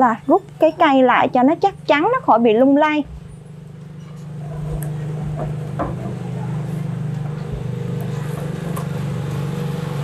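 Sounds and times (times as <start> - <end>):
low engine hum: 0.0 - 10.0.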